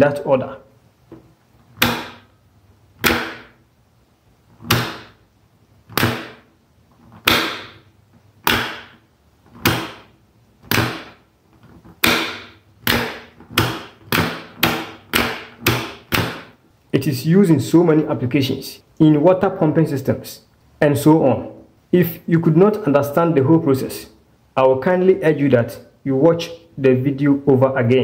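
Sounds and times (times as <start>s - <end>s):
rotary switch snapping: 3.0s - 3.6s, 4.6s - 5.2s, 5.9s - 6.4s, 8.4s - 9.0s.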